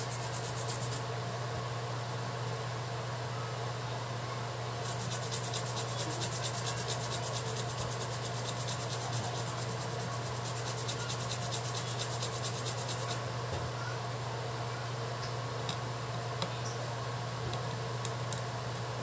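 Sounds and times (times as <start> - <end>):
low electrical hum: 0.0 - 19.0
brush scrubbing circuit board: 4.9 - 13.2.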